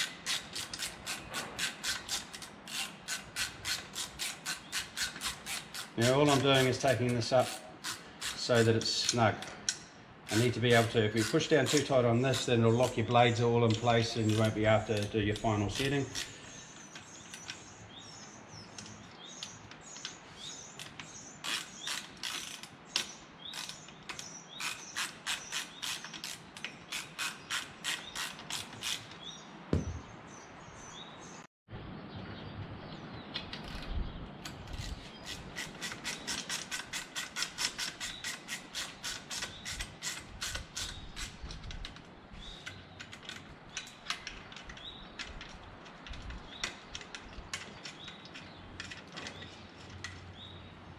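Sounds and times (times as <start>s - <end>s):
socket ratchet clicking: 0.0s - 13.0s, 20.8s - 29.2s, 34.5s - 50.3s.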